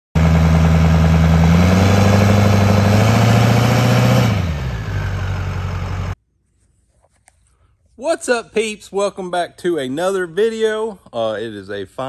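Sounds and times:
diesel truck engine running: 0:00.2 - 0:06.2.

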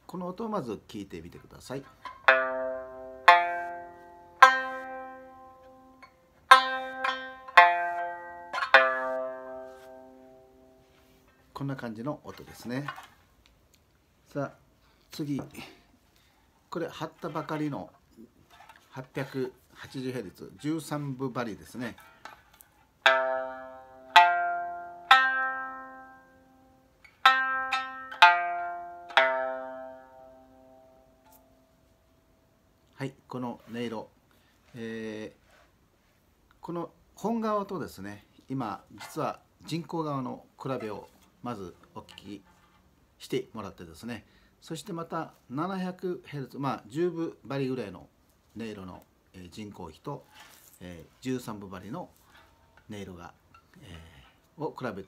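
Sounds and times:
plucked lute notes: 0:01.8 - 0:11.5, 0:12.3 - 0:13.3, 0:21.7 - 0:32.0.

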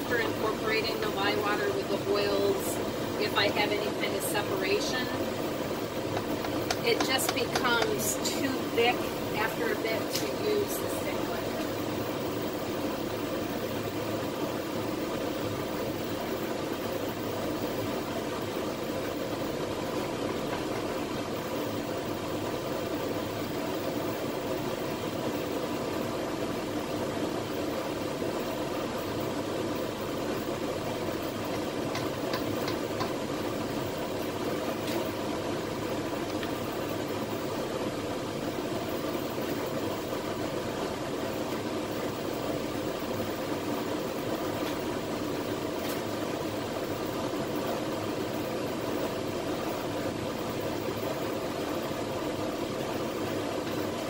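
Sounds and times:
cooker running hum: 0:00.0 - 0:54.0.

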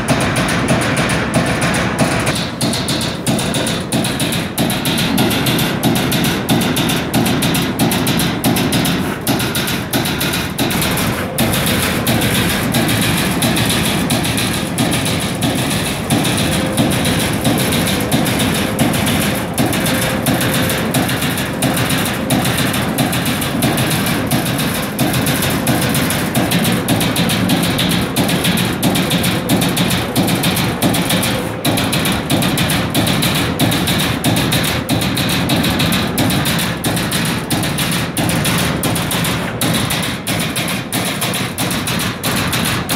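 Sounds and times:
mechanical din: 0:00.0 - 0:42.9
punch press striking sheet steel: 0:00.0 - 0:42.9.

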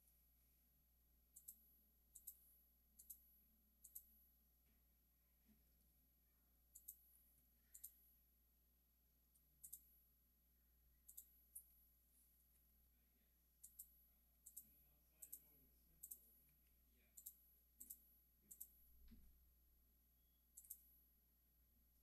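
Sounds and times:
faint computer mouse clicks: 0:01.4 - 0:01.6, 0:02.2 - 0:03.2, 0:03.8 - 0:04.1, 0:06.8 - 0:07.1, 0:07.7 - 0:08.0, 0:09.6 - 0:09.9, 0:11.1 - 0:11.7, 0:13.6 - 0:19.3, 0:20.6 - 0:20.9.

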